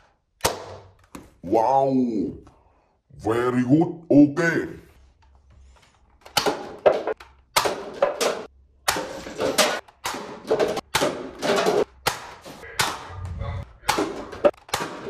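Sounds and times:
paper cups knocked over: 6.3 - 13.0.

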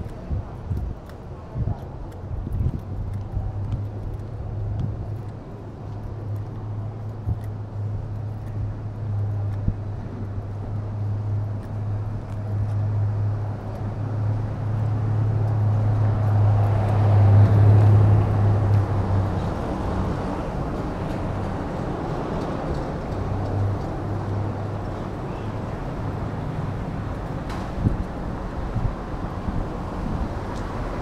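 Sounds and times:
traffic hum: 0.0 - 31.0
vehicle passing: 10.2 - 31.0.

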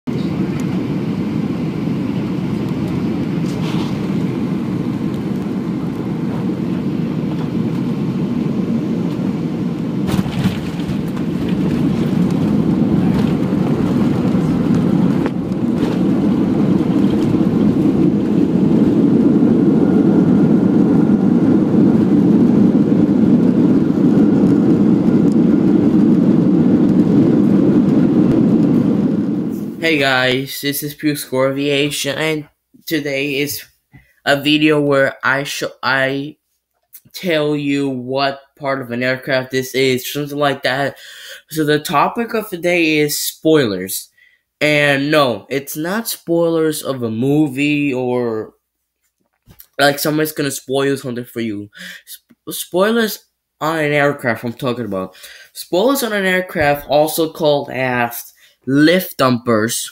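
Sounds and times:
airliner cabin rumble: 0.1 - 33.6.

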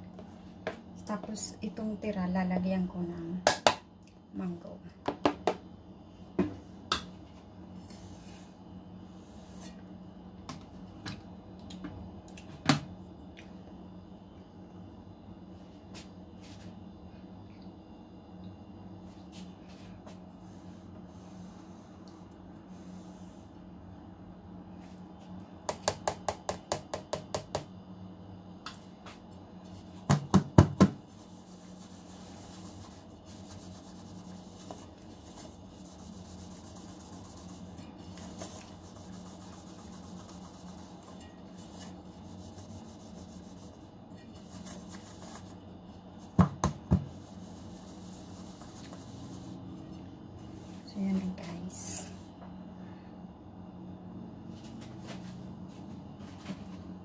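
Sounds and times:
steady low hum: 0.0 - 57.0
cake pan knocking on countertop: 30.1 - 31.0, 46.4 - 47.1.

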